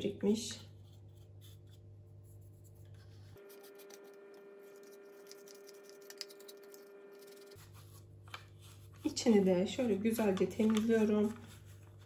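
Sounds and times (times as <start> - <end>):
plastic handling ticks and rubbing: 10.1 - 11.4.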